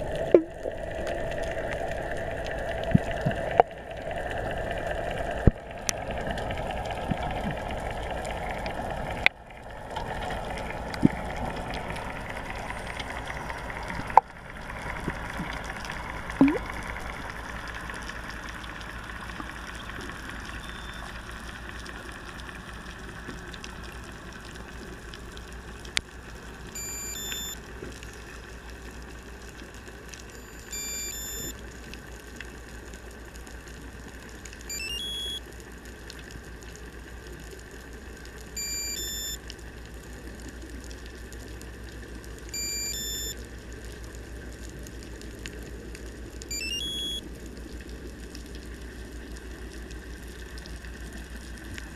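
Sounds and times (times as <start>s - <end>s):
underwater hiss and rumble: 0.0s - 34.8s, 35.4s - 46.5s, 47.2s - 51.9s
short electronic beep: 20.6s - 21.1s, 26.8s - 27.6s, 30.4s - 31.5s, 34.7s - 35.4s, 38.6s - 39.4s, 42.6s - 43.4s, 46.5s - 47.2s.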